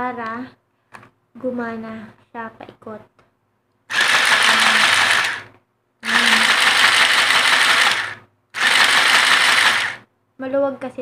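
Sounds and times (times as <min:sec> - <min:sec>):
sewing machine motor and gears running: 0:03.9 - 0:10.0.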